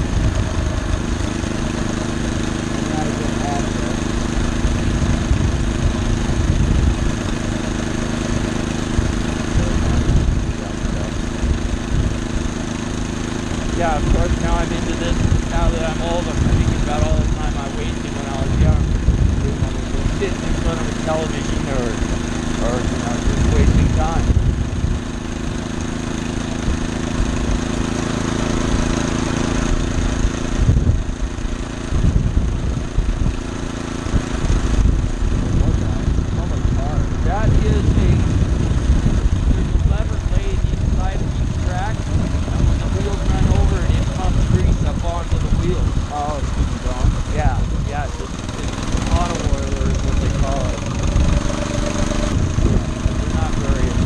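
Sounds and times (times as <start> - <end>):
small gasoline engine running: 0.0 - 54.0
wheels rumbling on rails: 0.0 - 54.0
low thumps: 34.1 - 54.0.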